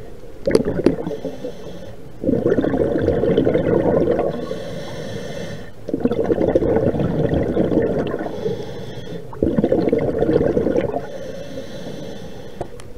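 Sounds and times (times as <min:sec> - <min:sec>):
exhaled bubbles gurgling: 0:00.0 - 0:12.7
regulator inhale hiss: 0:01.0 - 0:02.2, 0:04.3 - 0:05.9, 0:08.2 - 0:09.4, 0:10.9 - 0:12.8.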